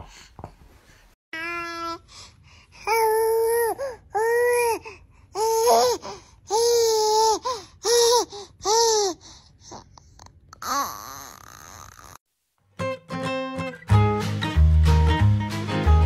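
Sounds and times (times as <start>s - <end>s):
baby squealing: 10.5s - 12.2s.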